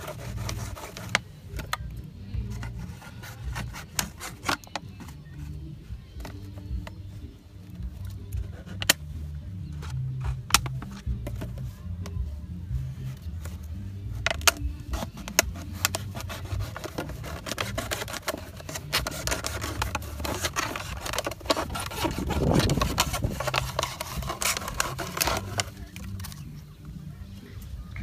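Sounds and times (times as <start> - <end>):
knife cutting plastic bottle: 0.0 - 1.8, 2.4 - 5.4, 8.3 - 9.0, 9.8 - 11.6, 13.0 - 26.5.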